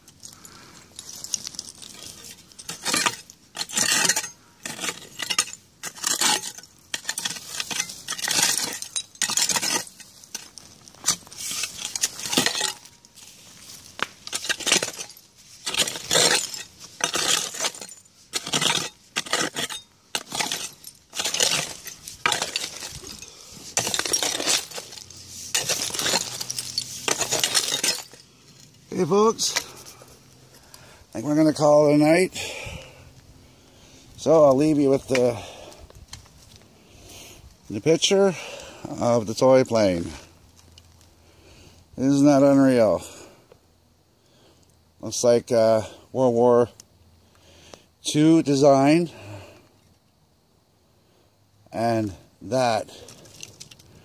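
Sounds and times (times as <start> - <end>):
metal clinking on stones: 0.1 - 30.0, 52.6 - 54.0
hoe scraping into stony soil: 0.9 - 32.8.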